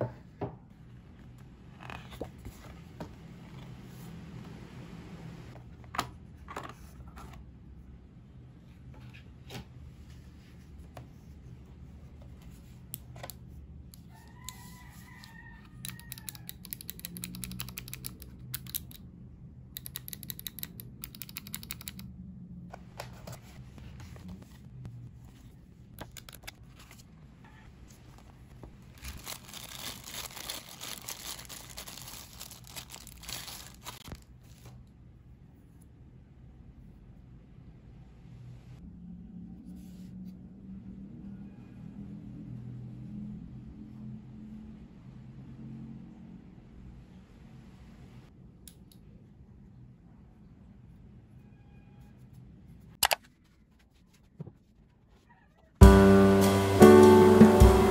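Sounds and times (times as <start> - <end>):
keyboard keys clicking: 16.0 - 19.0, 19.8 - 22.1
plastic packaging crinkling and tearing: 28.8 - 34.2.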